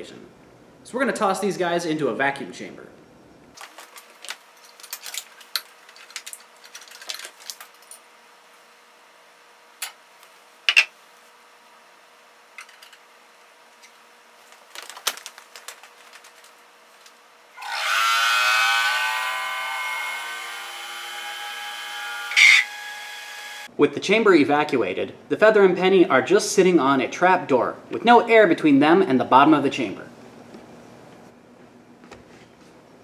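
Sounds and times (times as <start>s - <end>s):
vacuum pump running: 14.4s - 23.7s.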